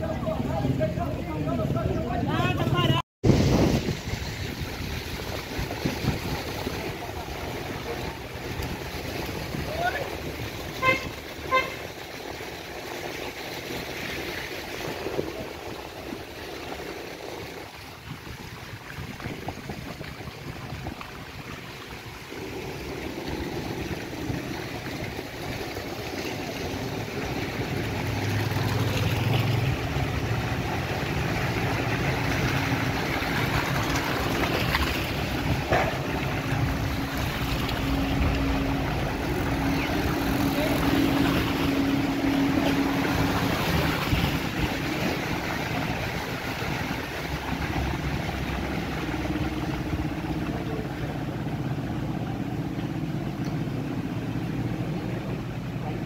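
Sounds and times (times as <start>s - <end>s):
engine hum: 0.0s - 56.0s
tyres swishing through wet mud: 0.0s - 56.0s.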